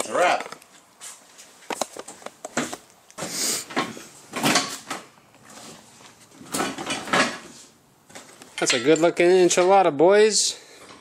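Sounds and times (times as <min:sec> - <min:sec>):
rustling scraping noises: 0:00.8 - 0:08.7.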